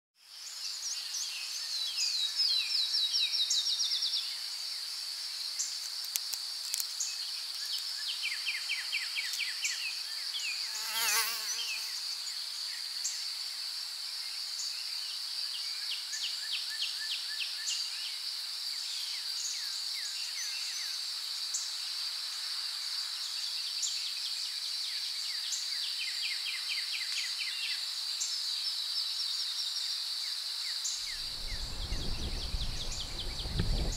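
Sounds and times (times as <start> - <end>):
flying insect buzzing past: 10.2 - 12.2, 31.0 - 33.9.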